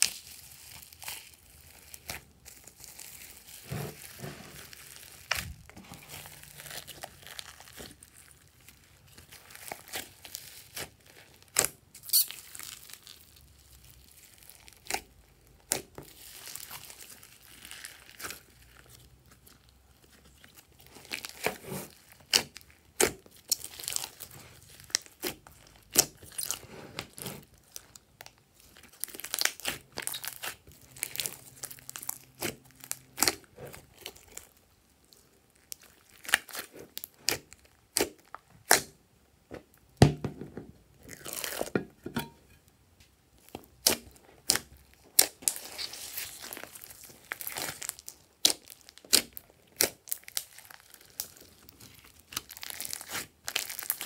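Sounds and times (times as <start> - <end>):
slime squelching and popping: 13.8 - 40.2, 43.4 - 54.0.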